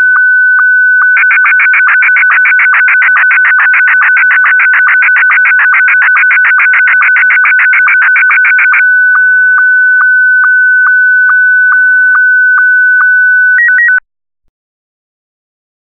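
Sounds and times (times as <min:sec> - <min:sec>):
warbling signal tones: 0:01.0 - 0:08.8.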